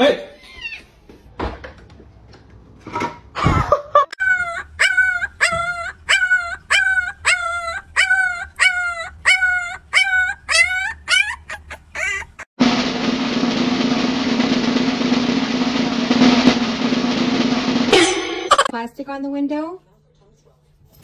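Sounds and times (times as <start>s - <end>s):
puppy yipping: 4.2s - 12.5s.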